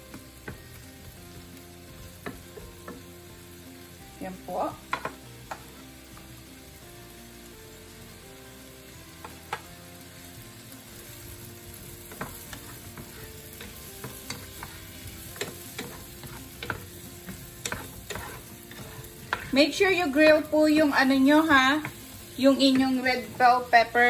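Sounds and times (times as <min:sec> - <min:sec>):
mushrooms sizzling in a frying pan: 0:00.0 - 0:24.0
wooden spoon scraping a pan: 0:11.8 - 0:24.0.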